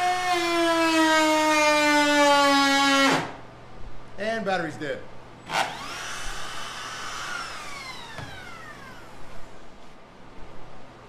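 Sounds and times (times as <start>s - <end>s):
router motor whining: 5.5s - 9.8s.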